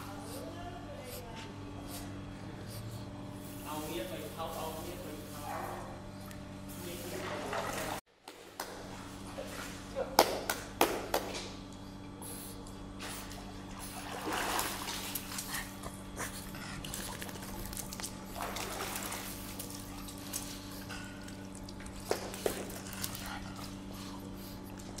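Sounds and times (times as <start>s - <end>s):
water splashing: 7.0s - 8.0s, 13.8s - 15.5s, 16.8s - 20.6s.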